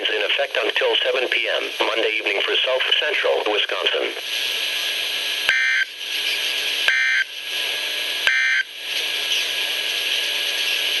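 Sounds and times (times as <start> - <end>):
radio hiss: 0.0 - 8.2.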